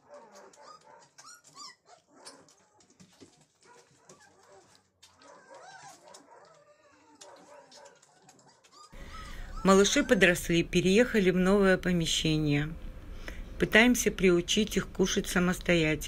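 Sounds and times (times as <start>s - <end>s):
puppy squeaking and whimpering: 0.2s - 2.9s, 4.2s - 10.5s.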